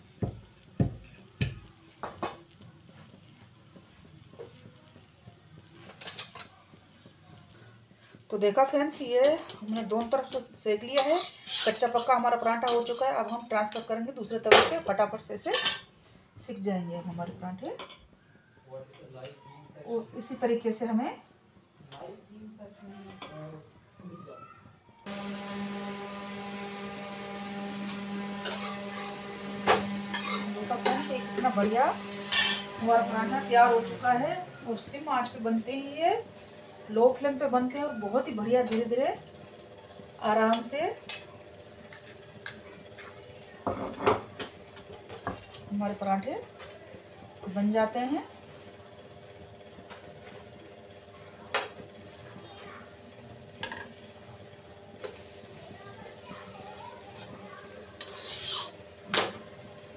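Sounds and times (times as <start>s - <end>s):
metal utensil knocking on griddle: 0.2s - 2.4s
metal spoon scraping iron griddle: 11.0s - 12.2s, 30.1s - 31.2s, 32.1s - 32.8s, 57.9s - 58.8s.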